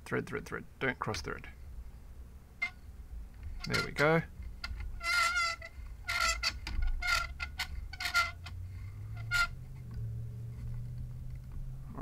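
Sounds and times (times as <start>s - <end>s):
microphone clip squeaking: 2.6s - 9.9s.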